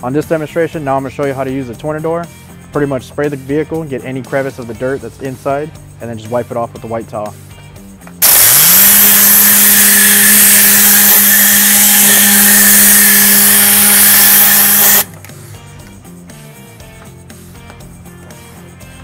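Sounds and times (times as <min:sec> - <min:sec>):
air cleaning gun hissing: 0:08.2 - 0:15.1.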